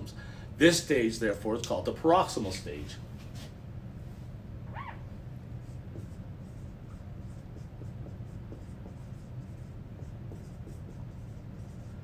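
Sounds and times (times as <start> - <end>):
low room hum: 0.0 - 12.0
marker scratching on whiteboard: 5.6 - 12.0.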